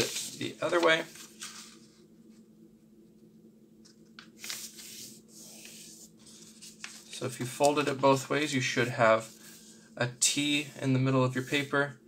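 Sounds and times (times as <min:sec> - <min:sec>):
paper rustling and rubbing: 0:00.0 - 0:02.1, 0:04.4 - 0:11.9.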